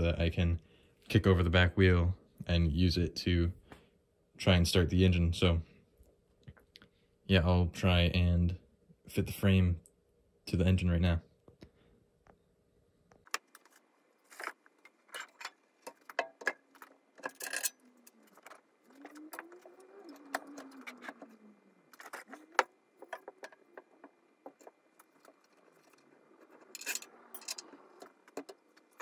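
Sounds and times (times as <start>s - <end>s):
metal parts clinking: 13.4s - 29.0s.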